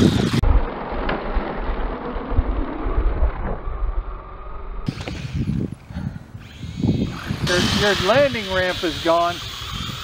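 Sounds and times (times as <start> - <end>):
low dull motor rumble: 0.0 - 7.6.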